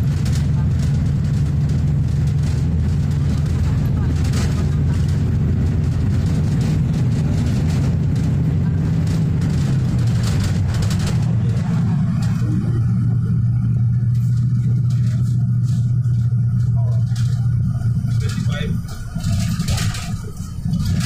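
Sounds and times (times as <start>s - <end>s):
bus engine hum: 0.0s - 21.0s.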